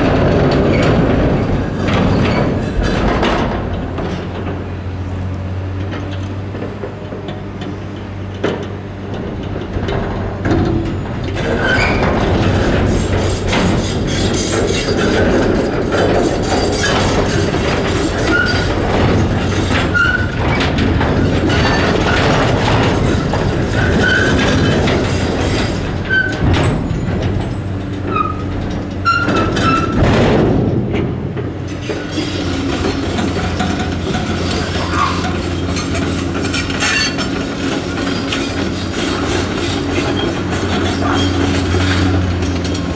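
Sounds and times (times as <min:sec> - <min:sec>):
metal clanks and scraping: 0:00.0 - 0:04.7, 0:08.3 - 0:42.9
excavator diesel engine running: 0:00.0 - 0:42.9
high metal squeals: 0:16.2 - 0:22.3, 0:22.9 - 0:27.2, 0:28.1 - 0:30.0, 0:34.5 - 0:42.3.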